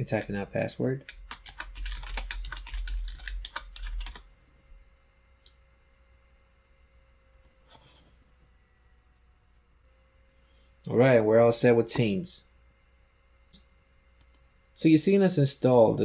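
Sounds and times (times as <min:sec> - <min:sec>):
typing on computer keyboard: 0:01.0 - 0:04.2.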